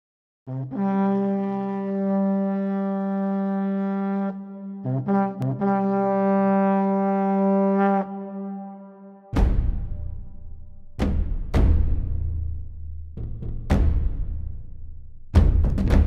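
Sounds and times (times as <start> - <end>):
long held brass notes: 0.5 - 10.1.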